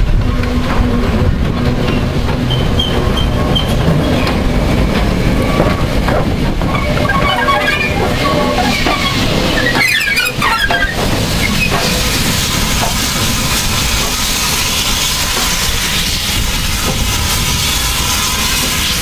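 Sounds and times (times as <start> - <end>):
steam locomotive hissing: 0.0 - 19.0
short high squeaks: 6.7 - 11.9.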